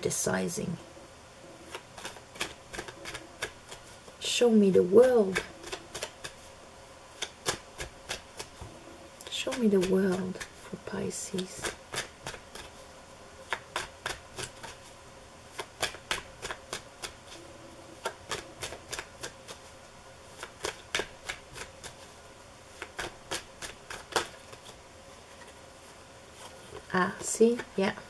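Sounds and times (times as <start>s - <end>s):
cards shuffling slaps: 1.7s - 4.2s, 5.2s - 6.5s, 7.2s - 8.7s, 13.4s - 14.8s, 15.5s - 17.4s, 18.0s - 19.7s, 20.4s - 22.1s, 22.8s - 24.8s.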